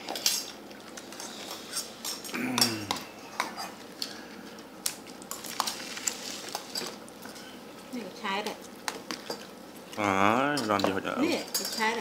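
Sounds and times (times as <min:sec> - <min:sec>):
cutlery and dishes clinking: 0:10.5 - 0:12.0.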